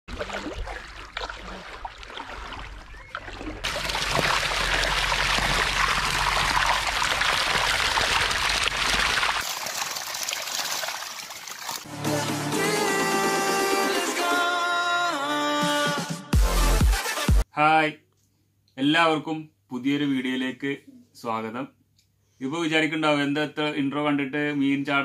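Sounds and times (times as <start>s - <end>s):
fish thrashing in water: 0.1s - 11.9s
net hauled through water splashing: 0.1s - 11.9s.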